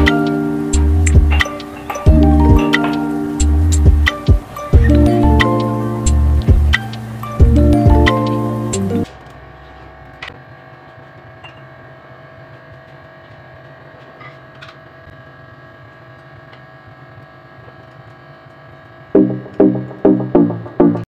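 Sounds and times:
faint hum and hiss: 0.0s - 21.0s.

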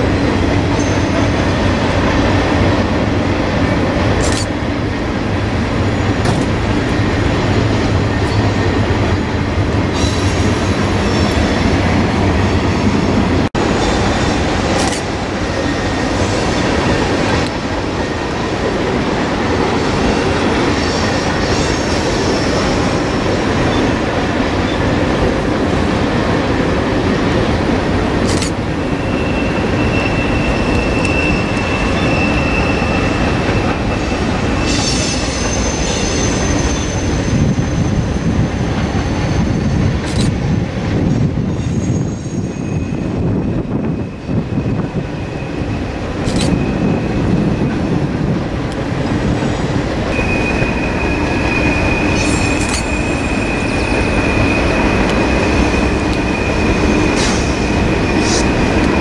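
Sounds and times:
freight train rumbling past: 0.0s - 59.0s
high wheel squeal: 0.6s - 2.1s, 20.1s - 24.0s, 28.4s - 40.3s, 49.4s - 59.0s.

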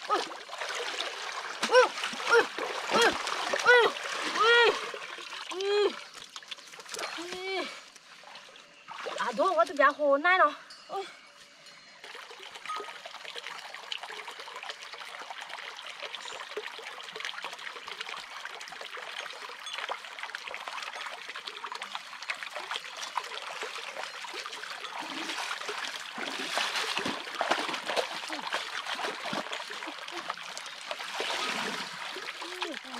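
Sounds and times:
splashing in water: 0.0s - 9.8s, 22.3s - 32.9s
stream trickling: 0.0s - 11.0s, 11.6s - 32.9s.

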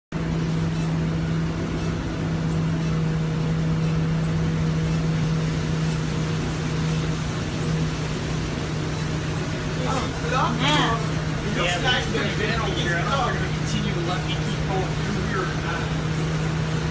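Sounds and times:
vehicle engine hum: 0.1s - 16.9s
heavy rain on windshield: 5.3s - 16.9s.

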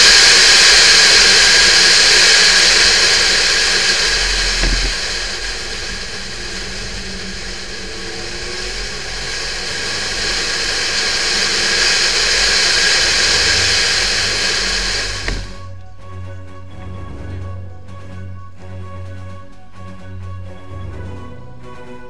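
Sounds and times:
wind and road noise: 0.0s - 15.7s
car engine at speed: 0.0s - 15.8s
click: 15.2s - 15.9s.

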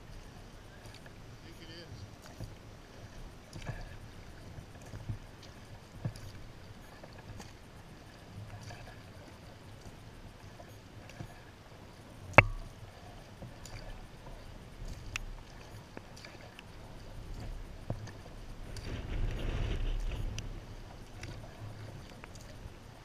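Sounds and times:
paddle strokes in water: 0.0s - 23.0s
sharp knock: 12.4s - 12.7s.

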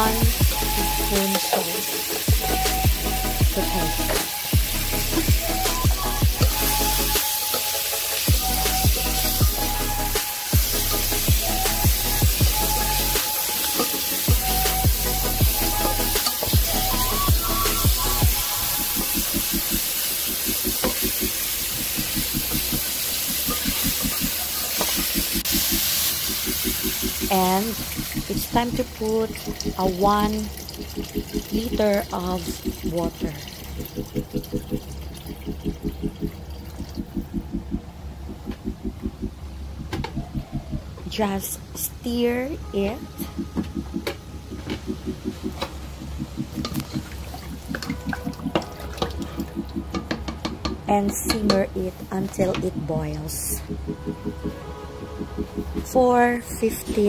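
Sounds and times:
food sizzling in a pot: 0.0s - 29.9s
background music with low beat: 0.0s - 41.1s, 42.5s - 57.0s.

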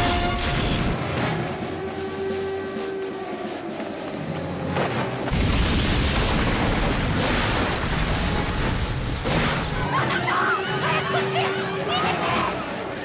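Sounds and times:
film score music: 0.0s - 13.0s
voices shouting: 9.8s - 13.0s.

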